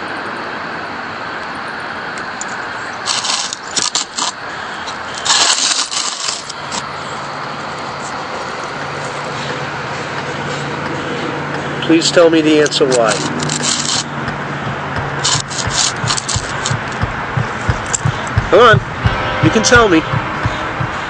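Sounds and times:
steady background hiss: 0.0s - 21.0s
handling noise scraping and rustling: 2.4s - 9.6s, 12.6s - 18.8s.

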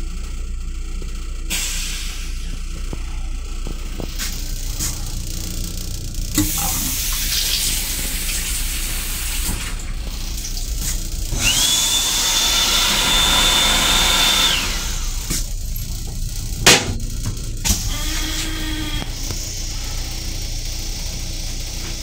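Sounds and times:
hand dryer motor whine: 3.6s - 22.0s
water rushing from faucet: 6.4s - 10.8s.

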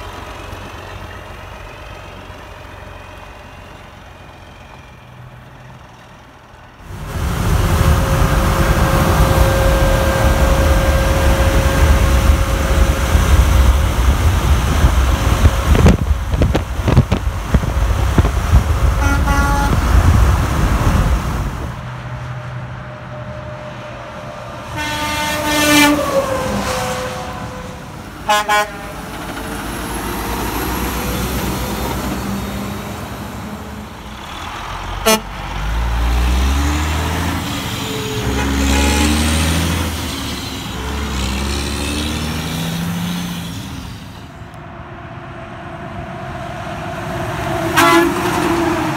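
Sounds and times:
truck engine and road noise: 0.0s - 48.9s
truck engine rumbling: 0.0s - 48.9s
truck air horn: 7.4s - 13.8s, 18.9s - 20.1s, 24.6s - 29.1s, 35.0s - 35.4s, 37.7s - 41.1s, 47.7s - 48.7s.

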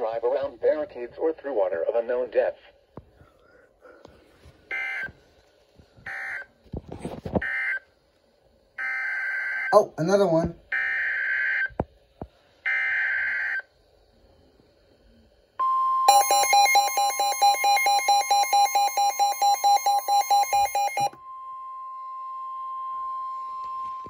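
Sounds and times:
rapid alarm beeps: 15.6s - 21.2s
steady attention tone: 15.6s - 21.4s
warbling data tones: 16.1s - 21.1s.

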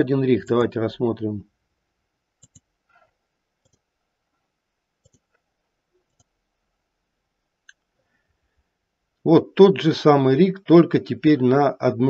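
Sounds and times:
computer mouse clicks: 2.4s - 3.9s, 5.0s - 5.4s, 6.0s - 6.4s.

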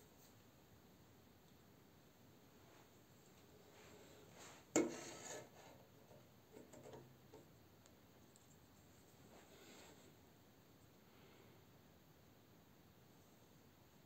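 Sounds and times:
toy scraping on table: 4.8s - 5.8s.

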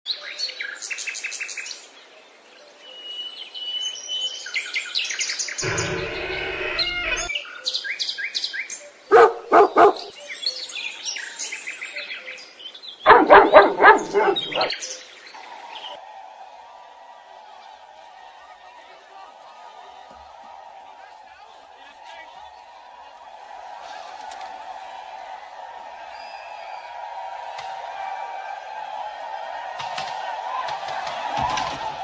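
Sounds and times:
loud animal calls: 5.6s - 7.3s, 9.1s - 10.1s, 13.1s - 14.8s
birds chirping and singing: 9.1s - 10.2s, 13.1s - 15.0s.

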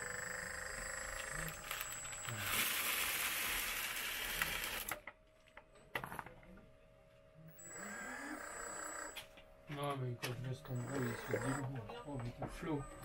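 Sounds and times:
hydraulic whine: 7.5s - 9.3s, 10.7s - 13.0s.

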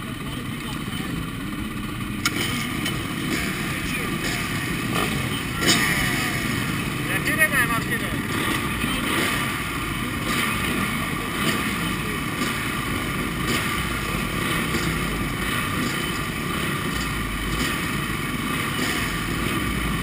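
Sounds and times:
motorbike engines idling: 0.0s - 20.0s.

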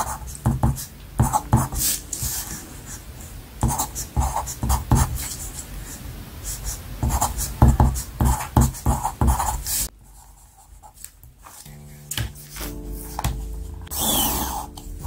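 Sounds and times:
pencil scratching on paper: 0.0s - 3.0s, 3.6s - 5.7s, 6.4s - 12.7s.

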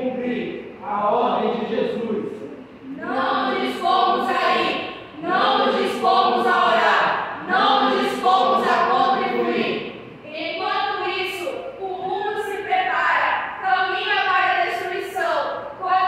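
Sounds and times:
group speaking in unison: 2.8s - 9.9s.

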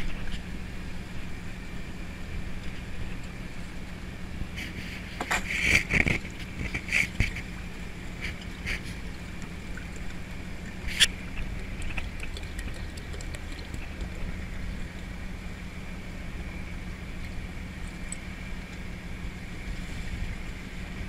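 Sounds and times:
boat engine running: 0.0s - 21.0s.

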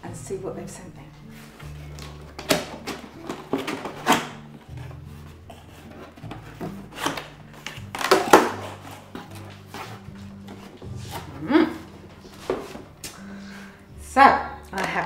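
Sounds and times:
cardboard scraping on cardboard: 3.5s - 7.3s, 8.0s - 11.4s.

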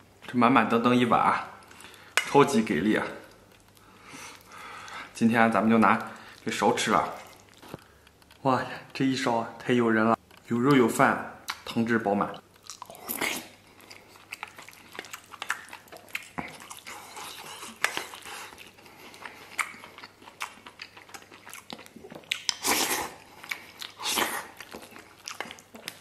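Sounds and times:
wet chewing and lip smacks: 12.4s - 26.0s.

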